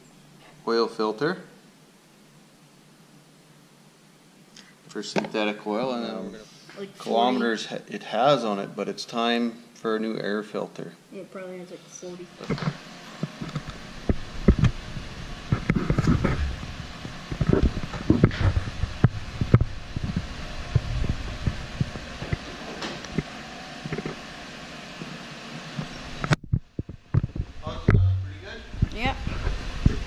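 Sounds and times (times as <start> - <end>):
low thumps and knocks: 15.5 - 22.6, 26.4 - 30.0.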